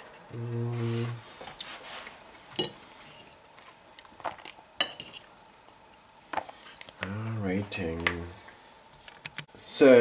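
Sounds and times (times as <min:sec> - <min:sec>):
man humming while eating: 0:00.3 - 0:01.2.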